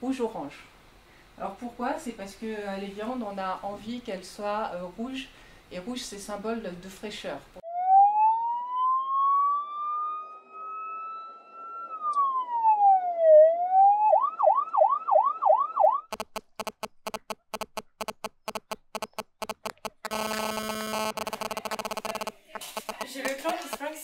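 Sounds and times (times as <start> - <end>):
siren wail and yelp: 7.6 - 16.1
stuttering electronic pulsing: 16.0 - 23.8.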